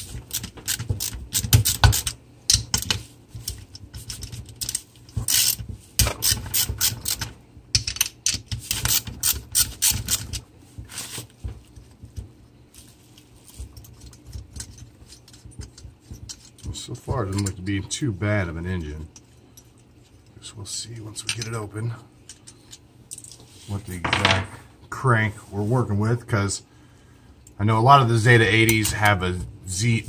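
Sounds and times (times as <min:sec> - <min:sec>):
metal clicks taps and rattles: 0:00.3 - 0:09.2.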